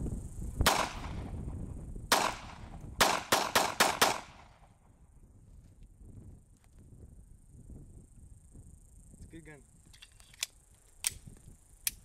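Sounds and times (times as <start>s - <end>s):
pistol shots: 0.7s - 1.2s, 2.1s - 4.7s.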